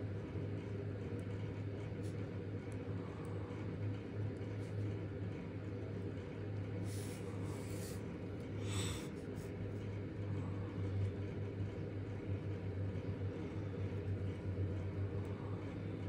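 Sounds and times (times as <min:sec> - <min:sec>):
steady low hum: 0:00.0 - 0:16.0
person breathing through nose: 0:08.6 - 0:09.4.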